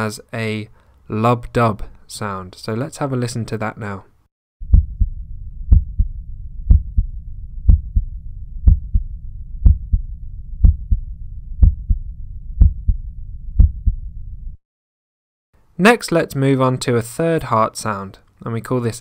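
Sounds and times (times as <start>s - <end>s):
heartbeat thuds: 4.6s - 14.6s.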